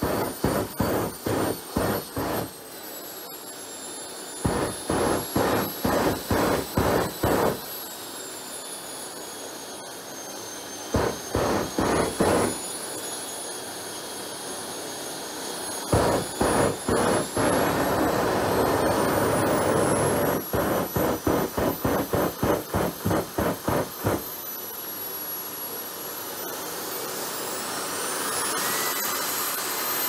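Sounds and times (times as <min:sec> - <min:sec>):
rapid pulsing: 0:00.0 - 0:02.5, 0:04.4 - 0:07.6, 0:11.0 - 0:12.6, 0:15.9 - 0:24.3
jet turbine high whine: 0:00.0 - 0:30.0.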